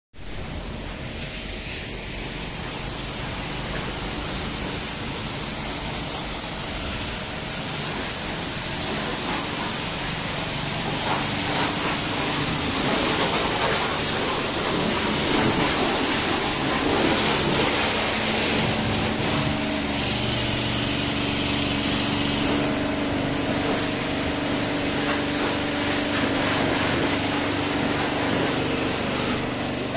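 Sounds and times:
pressure washer spraying water: 0.2s - 29.9s
pressure washer motor humming: 0.3s - 29.9s.

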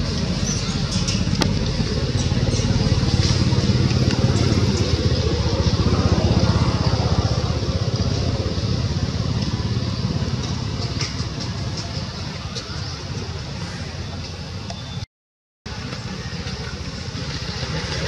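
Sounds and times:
motor engine running: 0.0s - 13.5s.

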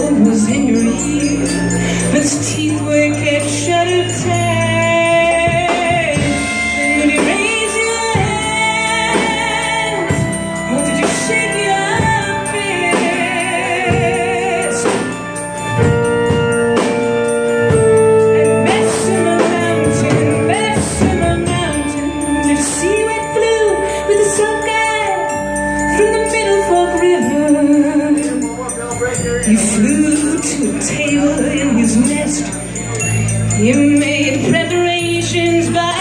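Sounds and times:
woman singing into a microphone: 0.0s - 16.9s, 17.7s - 28.6s, 29.5s - 36.0s
live band playing: 0.0s - 36.0s.

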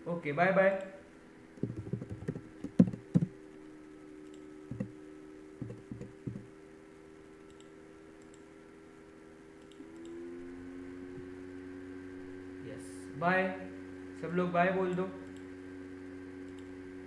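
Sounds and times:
low electrical hum: 0.0s - 17.0s
keyboard and mouse clicks: 1.6s - 3.3s, 4.3s - 4.9s, 5.6s - 6.5s.

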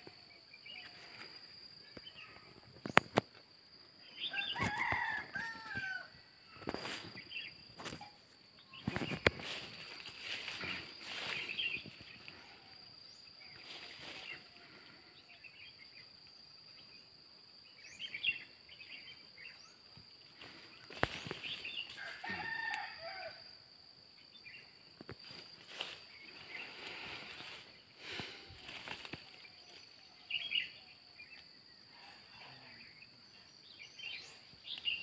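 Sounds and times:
high insect whine: 0.0s - 35.0s
rooster crowing: 4.2s - 6.4s, 21.9s - 23.5s.

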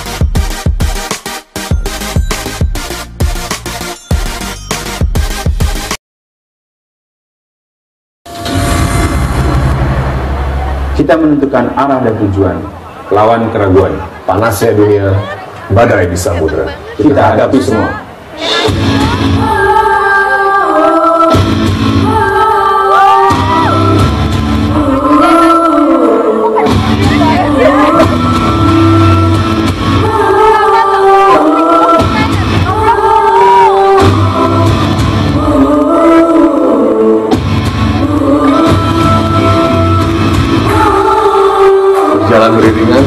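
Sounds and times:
loud live concert music: 0.0s - 6.0s, 18.4s - 20.0s, 21.0s - 43.0s
deep bass: 8.3s - 12.7s, 18.7s - 19.9s, 21.4s - 22.6s, 23.3s - 26.0s, 26.6s - 36.6s, 37.3s - 41.3s.

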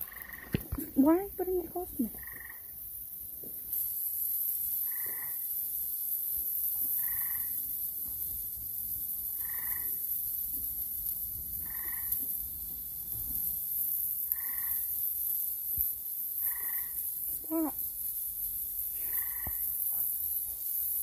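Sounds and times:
frog calling: 0.0s - 2.7s, 4.8s - 5.4s, 7.0s - 7.6s, 9.4s - 10.0s, 11.6s - 12.2s, 14.3s - 14.9s, 16.4s - 17.8s, 19.0s - 19.6s
steady high-pitched hiss: 0.0s - 21.0s.

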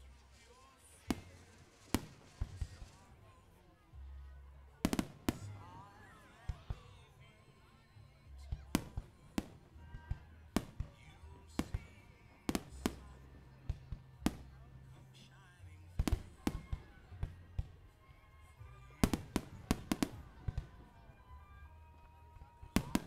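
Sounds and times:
music with steady bass: 8.0s - 23.0s.

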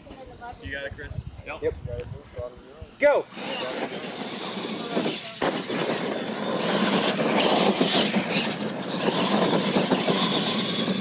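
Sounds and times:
toy truck motors running hard: 3.3s - 11.0s
tyres churning dirt: 3.3s - 11.0s.

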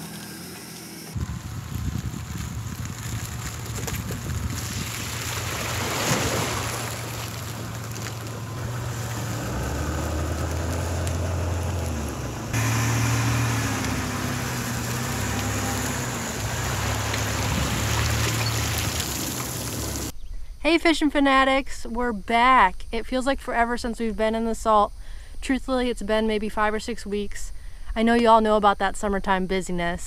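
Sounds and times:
car engine humming: 0.0s - 20.1s.

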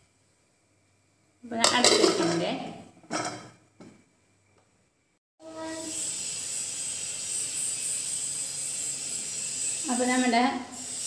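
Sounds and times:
food sizzling on stove: 5.4s - 11.0s.

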